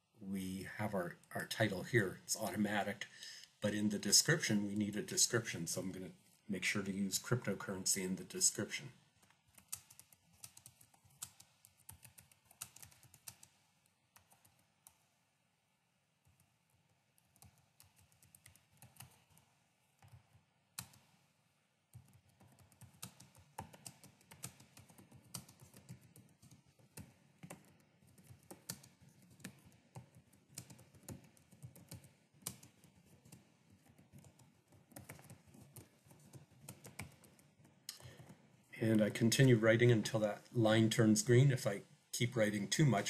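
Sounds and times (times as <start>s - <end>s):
typing on a keyboard: 9.2s - 15.0s, 16.2s - 21.2s, 21.9s - 38.5s.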